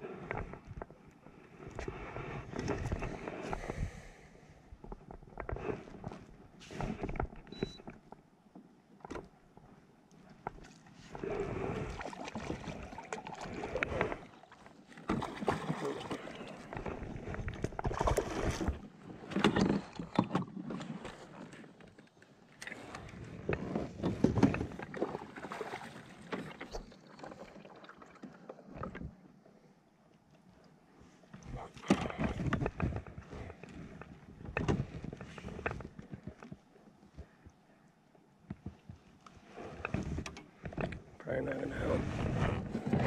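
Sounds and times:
water sloshing against kayak: 0.1 - 43.0
knocks and rustles of gear: 31.4 - 37.4.

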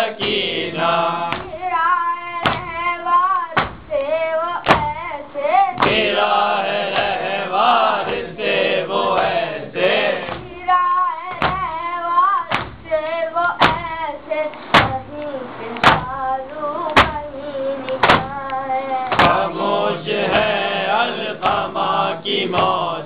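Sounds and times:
boy singing lament: 0.0 - 8.1
rhythmic chest-beating: 0.0 - 23.0
voices singing together: 0.0 - 23.0.

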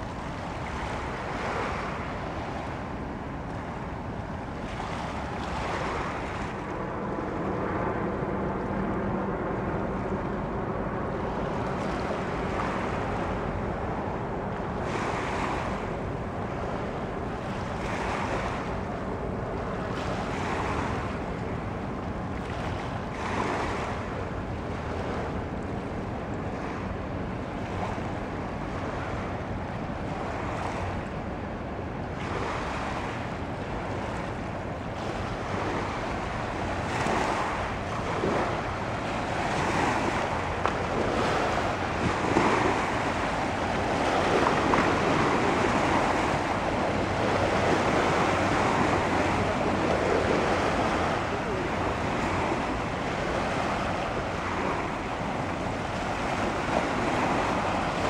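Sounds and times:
waves washing over pebbles: 36.6 - 58.0.

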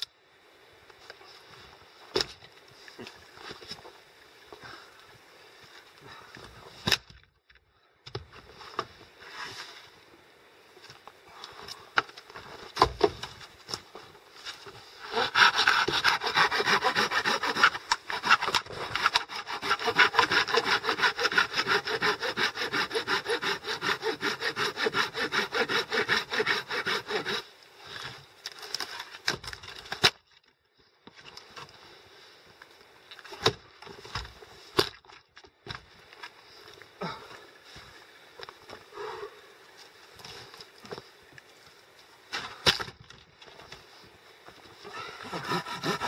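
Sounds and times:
hand saw cutting branch: 15.0 - 27.5, 44.8 - 46.0.

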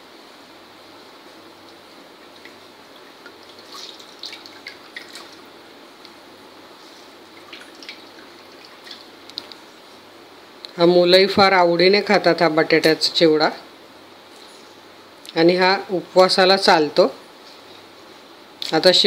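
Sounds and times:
water dripping and splashing: 2.3 - 5.6, 7.3 - 9.6.

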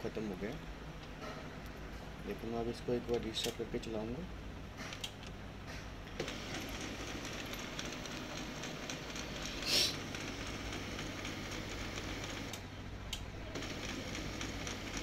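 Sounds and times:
printer motors and gears running: 6.1 - 12.6, 13.5 - 15.0
short hiss: 9.6 - 10.0.

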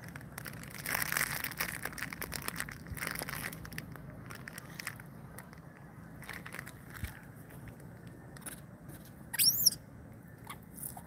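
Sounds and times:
plastic wrapper crinkling: 0.0 - 8.6.

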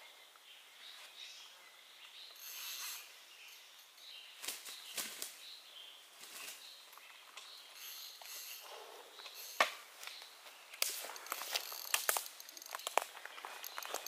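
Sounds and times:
footsteps through leafy undergrowth: 6.2 - 6.8.

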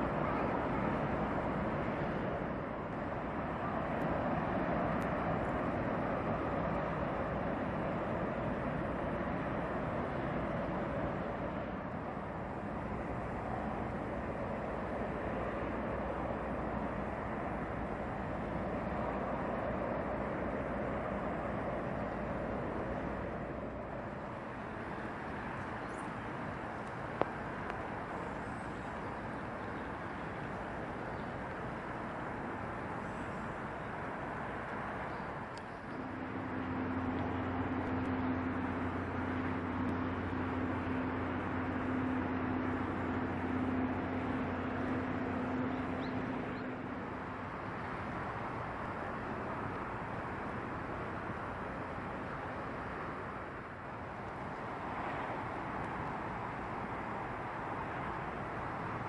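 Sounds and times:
machinery rumble: 0.0 - 57.6
distant traffic: 0.0 - 59.0
low mechanical hum: 0.0 - 59.0
steady rushing sound: 31.7 - 52.6.

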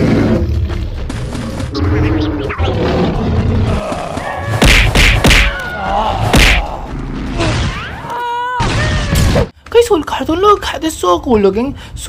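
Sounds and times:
cartoon thuds and whacks: 4.5 - 5.6, 6.3 - 6.7.

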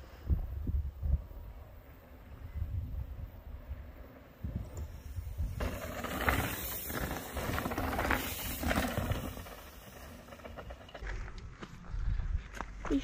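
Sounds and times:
wind buffeting microphone: 0.0 - 9.4
mountain bikes rolling on dirt: 0.0 - 13.0
rough rushing hiss: 4.5 - 10.4.

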